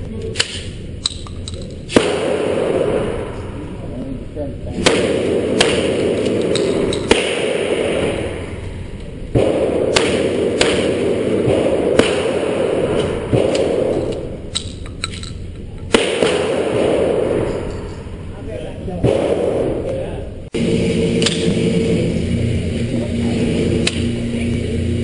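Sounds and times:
gunshots with reverberation: 0.3s - 3.9s, 4.7s - 14.9s, 15.8s - 18.3s, 18.9s - 20.1s.

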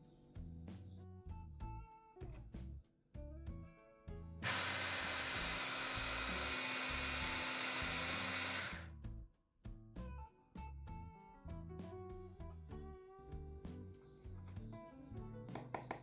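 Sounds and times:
background music: 0.0s - 16.0s
food chopper grinding: 4.4s - 8.9s.

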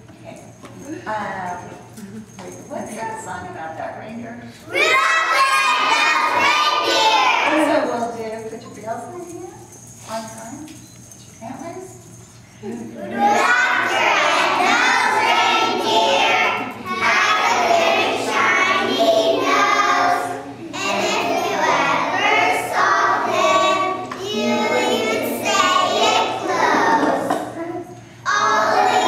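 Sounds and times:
children singing together: 4.7s - 7.5s, 13.0s - 27.4s, 28.2s - 29.0s.

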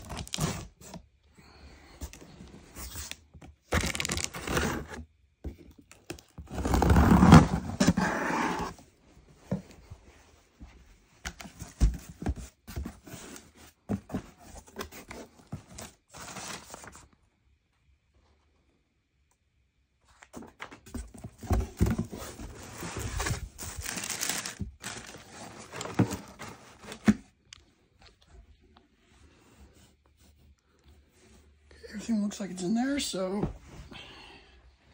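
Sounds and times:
cardboard tearing and scraping: 0.0s - 1.0s, 2.8s - 5.0s, 6.4s - 8.8s, 21.3s - 27.2s
plastic wrap crinkling: 22.7s - 27.0s.

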